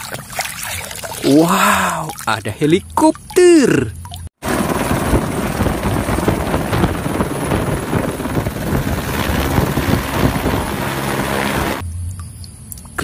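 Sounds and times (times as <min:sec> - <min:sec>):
helicopter rotor chopping: 0:04.4 - 0:11.8.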